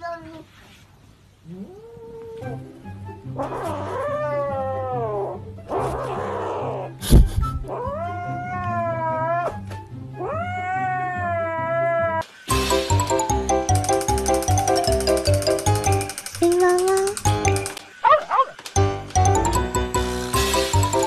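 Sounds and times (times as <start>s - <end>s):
cat yowling: 3.4s - 5.4s, 7.7s - 9.6s, 10.2s - 12.2s.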